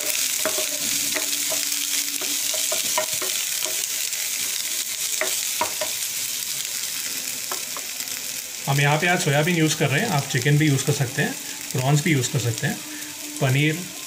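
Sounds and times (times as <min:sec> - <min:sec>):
spatula clicking and scraping pan: 0:00.0 - 0:06.0
oil sizzling in a frying pan: 0:00.0 - 0:14.0.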